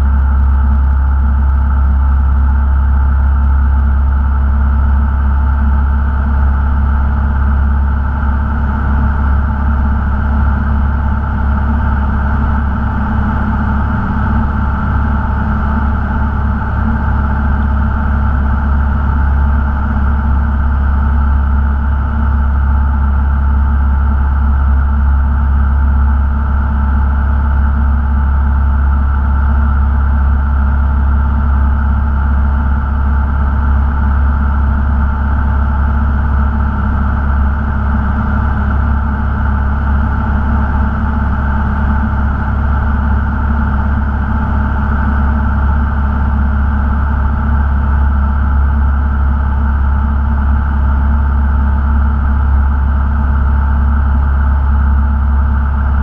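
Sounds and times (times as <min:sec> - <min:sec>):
propeller plane engine droning: 0:00.0 - 0:56.0.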